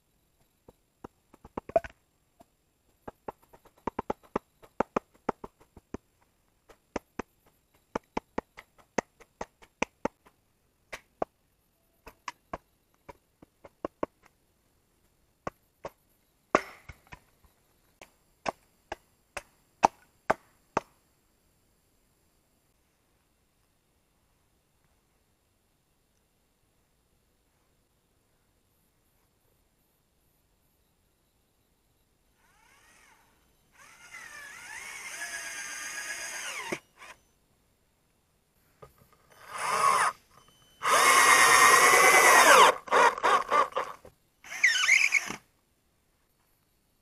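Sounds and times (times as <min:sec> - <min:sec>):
hatchet chopping wood: 0:15.4 - 0:17.2.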